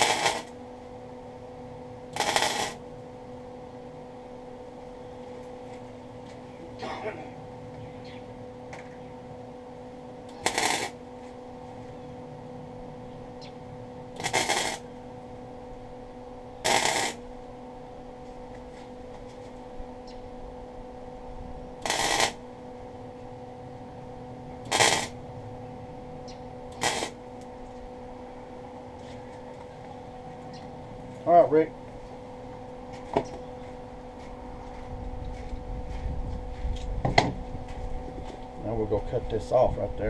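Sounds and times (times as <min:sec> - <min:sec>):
crackling welding arc: 0:00.0 - 0:03.2, 0:10.1 - 0:11.9, 0:13.3 - 0:17.5, 0:21.7 - 0:22.7, 0:24.6 - 0:25.3, 0:26.2 - 0:27.9
welder low hum: 0:00.0 - 0:40.0.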